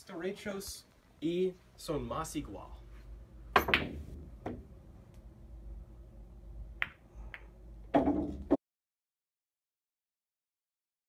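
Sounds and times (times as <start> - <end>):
pool balls clacking: 3.6 - 4.7, 7.9 - 8.6.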